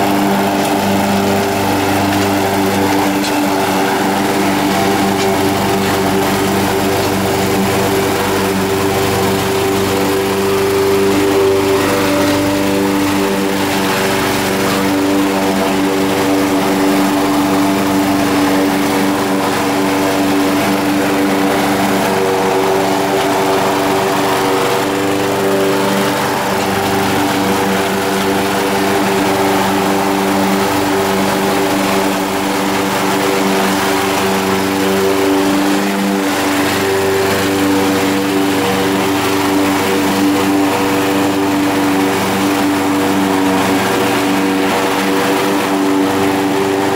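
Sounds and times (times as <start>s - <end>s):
lawn mower engine running: 0.0s - 46.9s.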